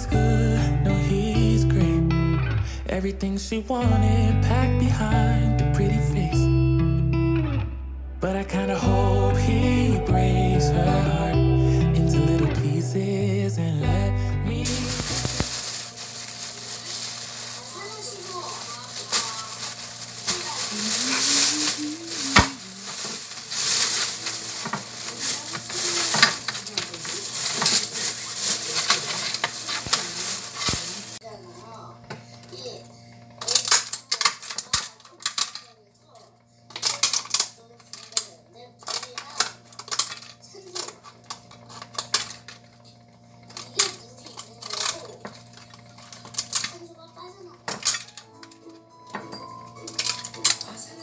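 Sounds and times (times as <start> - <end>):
food hissing in a pot: 14.7 - 31.2
utensils clinking against dishes: 14.7 - 31.2, 33.4 - 35.8, 36.7 - 46.8, 47.6 - 51.0.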